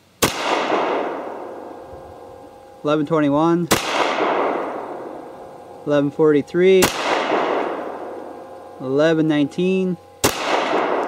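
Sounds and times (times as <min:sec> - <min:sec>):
pistol shots: 0:00.2 - 0:01.8, 0:03.7 - 0:05.2, 0:06.8 - 0:08.6, 0:10.2 - 0:11.0.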